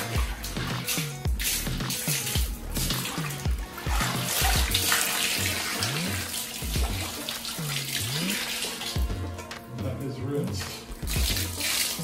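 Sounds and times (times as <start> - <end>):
water splashing in bucket: 0.0 - 9.8, 10.4 - 12.0
background music with beat: 0.0 - 12.0.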